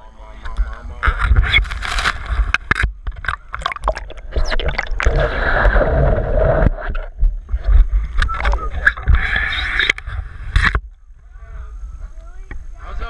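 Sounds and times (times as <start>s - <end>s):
water splashing and gurgling: 1.2s - 10.8s
underwater bubbling hiss: 1.4s - 10.8s.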